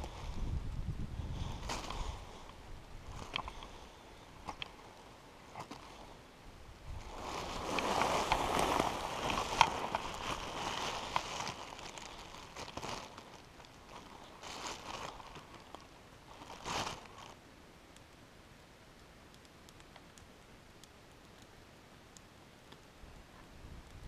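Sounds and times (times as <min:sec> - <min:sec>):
shrubs rustling: 0:01.2 - 0:06.2, 0:06.8 - 0:17.4
plastic bag crinkling: 0:07.0 - 0:17.4.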